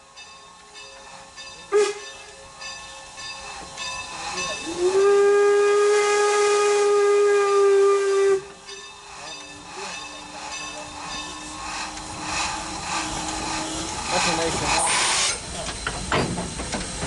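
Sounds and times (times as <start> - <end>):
train running noise: 0.0 - 17.0
steam locomotive whistle: 1.7 - 2.4, 4.6 - 8.7, 11.2 - 15.4.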